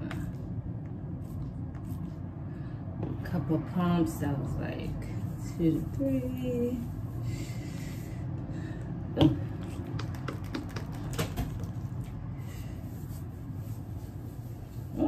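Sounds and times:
wet hair squishing and clicking: 9.6 - 12.2.

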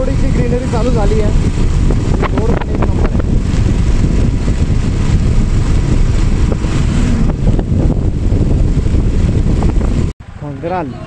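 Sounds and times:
vehicle travelling on highway: 0.0 - 11.0
wind buffeting microphone: 0.0 - 11.0.

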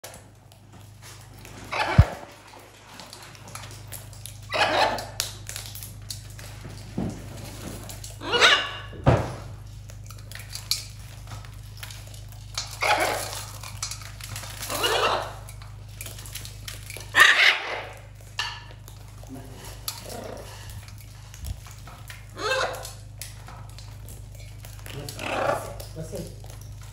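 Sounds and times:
loud parrot calls: 1.7 - 2.3, 4.5 - 5.2, 8.1 - 9.0, 12.8 - 13.5, 14.6 - 15.5, 17.1 - 18.1, 22.3 - 23.0, 25.1 - 25.9.

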